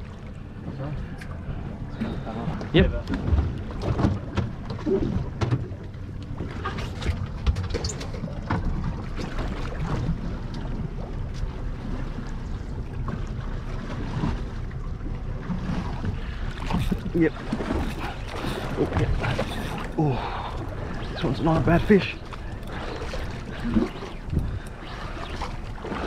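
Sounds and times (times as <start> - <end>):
water against boat hull: 0.0 - 26.0
light knocks and splashes: 2.0 - 26.0
wind on microphone: 20.7 - 26.0.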